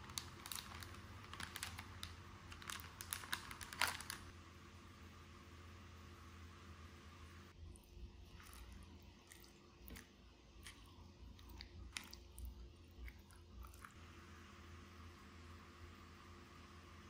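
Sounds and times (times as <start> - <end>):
person chewing food: 7.6 - 14.0.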